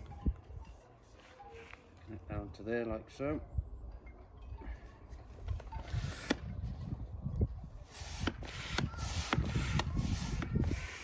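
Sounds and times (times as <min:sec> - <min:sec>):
low wind rumble on microphone: 0:05.2 - 0:11.0
plastic pump rubbing and scraping: 0:07.9 - 0:11.0.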